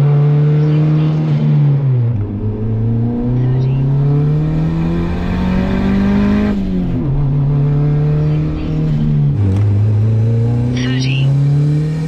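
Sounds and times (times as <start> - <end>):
car engine revving and upshifting: 0.0 - 12.0.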